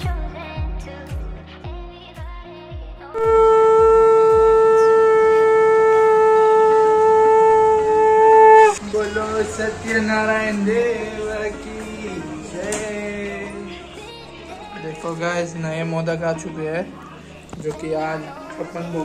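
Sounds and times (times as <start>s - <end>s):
music with steady drum beat: 0.0s - 4.8s
conch shell blown: 3.2s - 8.9s.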